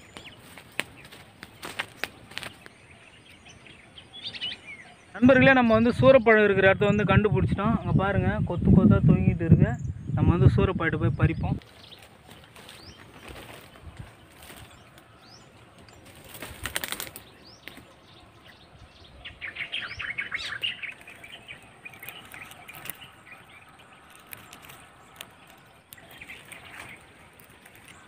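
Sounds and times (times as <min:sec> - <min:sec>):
thorny branches rustling: 0:00.0 - 0:02.8, 0:11.6 - 0:28.0
faint bird chirps: 0:11.1 - 0:28.0.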